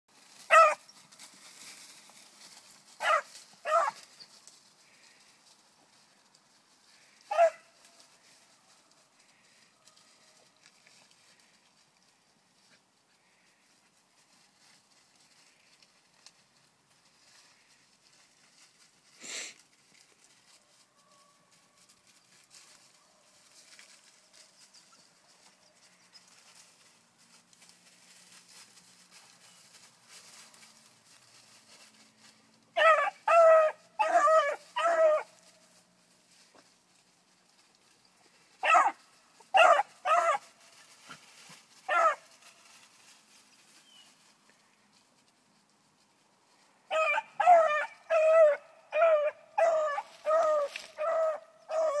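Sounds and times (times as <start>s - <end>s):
faint rustling: 0.1s - 32.8s, 33.8s - 46.9s
puppy barking: 0.5s - 0.9s, 3.0s - 4.0s, 7.3s - 7.7s, 32.8s - 35.3s, 38.6s - 40.5s, 41.9s - 42.3s, 46.9s - 52.0s.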